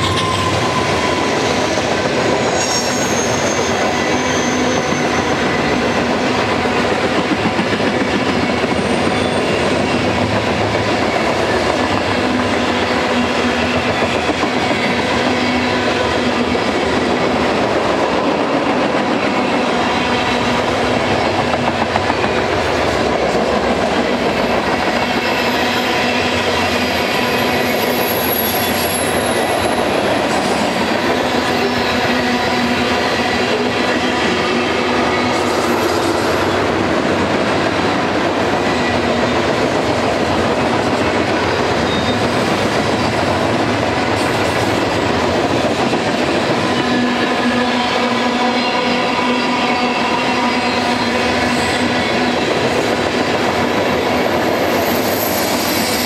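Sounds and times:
high-pitched wheel squeals: 0.0s - 6.0s, 27.2s - 29.9s, 54.6s - 56.0s
freight train wheels rumbling: 0.0s - 56.0s.

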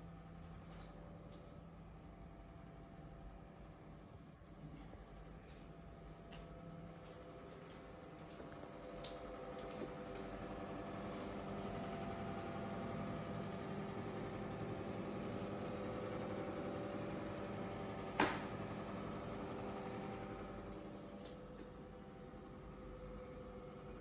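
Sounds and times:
extractor fan humming: 0.0s - 24.0s.

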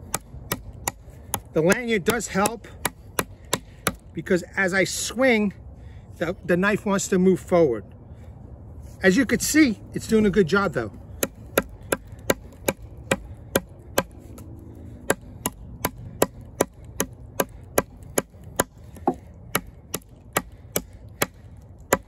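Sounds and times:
knife chopping into wood: 0.0s - 4.0s, 11.2s - 22.0s.

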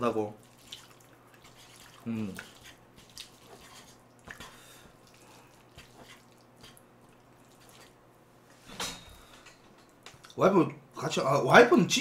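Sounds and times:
noodles stirred in a frying pan: 0.4s - 8.0s.

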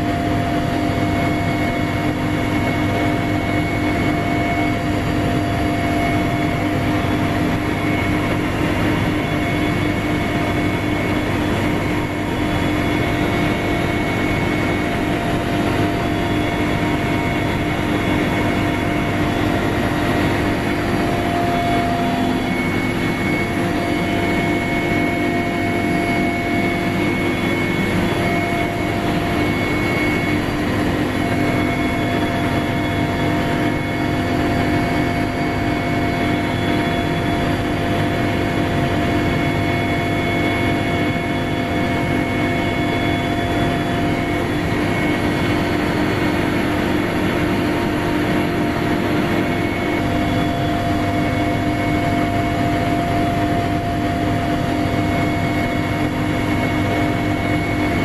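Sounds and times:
constant whining tones: 0.0s - 58.0s
helicopter engine and rotor drone: 0.0s - 58.0s.

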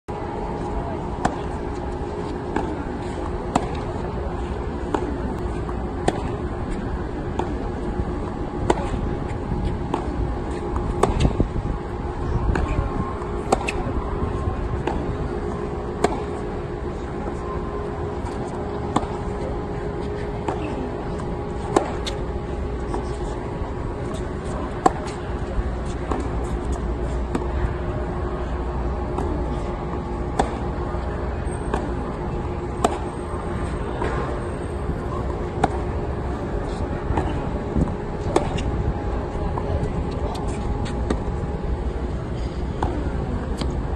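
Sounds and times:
steady low rumble: 0.1s - 43.9s
steady mechanical hum: 0.1s - 43.9s
tennis ball bouncing: 1.2s - 7.8s, 8.6s - 9.0s, 9.6s - 11.4s, 12.4s - 13.9s, 14.7s - 16.4s, 18.2s - 19.4s, 20.1s - 22.2s, 24.0s - 28.4s, 29.0s - 30.8s, 31.6s - 32.2s, 32.8s - 34.4s, 35.2s - 36.0s, 36.7s - 37.4s, 38.2s - 38.7s, 39.5s - 41.3s, 42.7s - 43.8s
tennis racket hitting ball: 2.4s - 3.8s, 4.4s - 7.6s, 8.6s - 9.1s, 9.7s - 11.4s, 13.4s - 13.9s, 14.7s - 16.4s, 18.2s - 19.3s, 20.1s - 22.2s, 24.0s - 25.2s, 30.3s - 30.7s, 32.8s - 33.1s, 35.6s - 35.8s, 38.2s - 38.7s.

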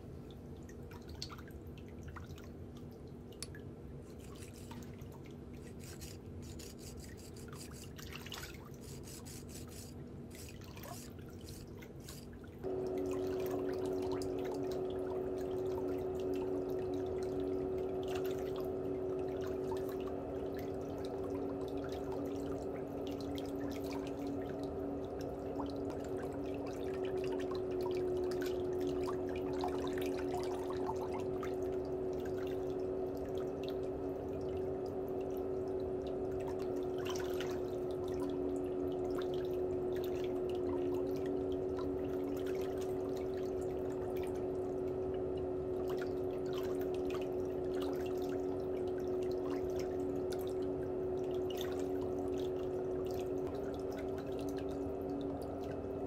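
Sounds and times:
motor humming: 4.0s - 4.9s, 5.6s - 19.5s.

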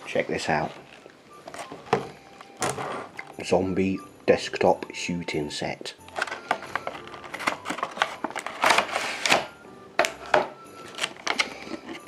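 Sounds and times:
plastic packaging crinkling: 6.1s - 12.0s.

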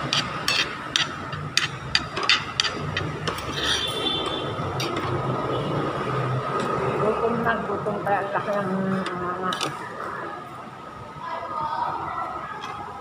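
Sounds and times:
cutlery clinking on plates: 0.0s - 4.0s
steady background hum: 0.0s - 13.0s
metal squeaking on plate: 2.2s - 5.0s.

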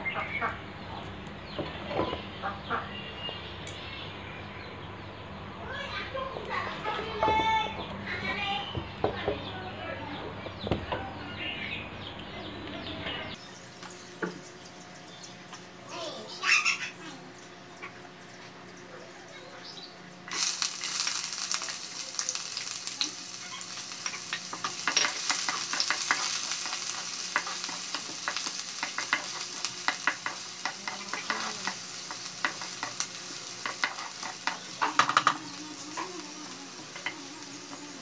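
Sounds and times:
onions sizzling in hot oil: 20.3s - 38.0s
spatula scraping a pan: 23.4s - 37.3s.

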